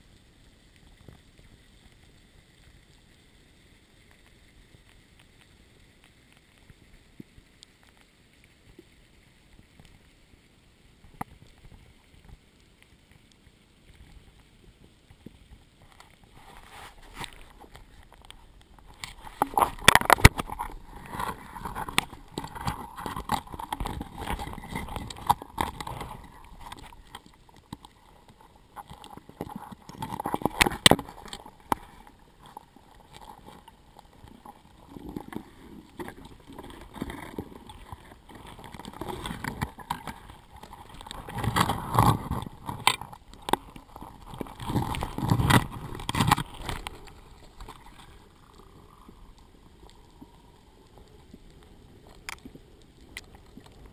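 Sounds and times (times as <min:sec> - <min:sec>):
underwater knocks and scrapes: 0:13.9 - 0:53.9.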